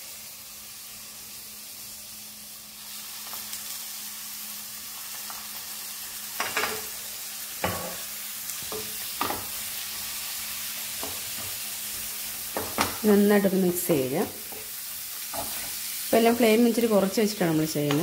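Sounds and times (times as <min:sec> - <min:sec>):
shallots sizzling in a pan: 0:00.0 - 0:18.0
spatula scraping a pan: 0:14.4 - 0:15.9.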